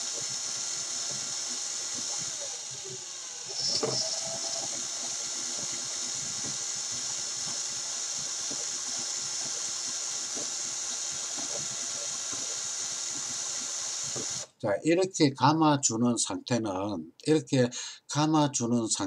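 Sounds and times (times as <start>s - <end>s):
cordless drill whirring: 0.0s - 14.6s.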